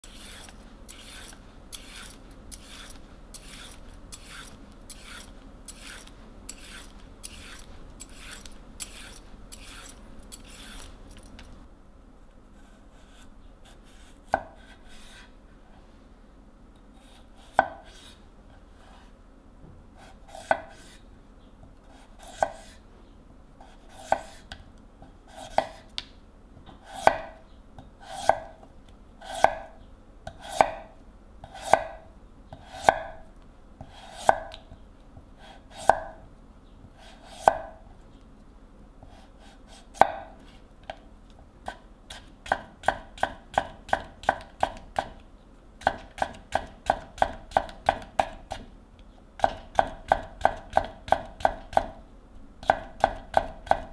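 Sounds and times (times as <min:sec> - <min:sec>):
knife chopping carrot on board: 0:17.5 - 0:18.1, 0:25.3 - 0:26.1, 0:26.7 - 0:27.4, 0:30.3 - 0:30.8, 0:31.4 - 0:33.2, 0:33.8 - 0:34.8, 0:37.0 - 0:37.8, 0:39.1 - 0:40.3, 0:41.6 - 0:45.2, 0:45.8 - 0:48.7, 0:49.4 - 0:52.0, 0:52.6 - 0:53.9.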